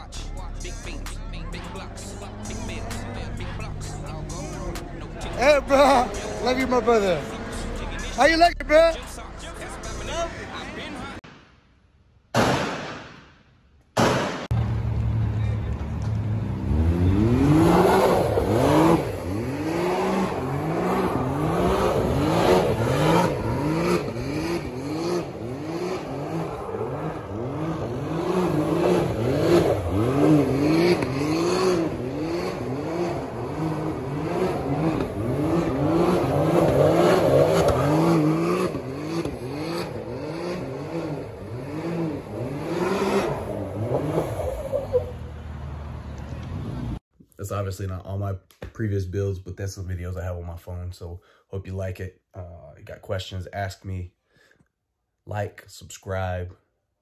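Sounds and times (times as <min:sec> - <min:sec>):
engine revving: 0:00.0 - 0:10.0, 0:14.0 - 0:47.0.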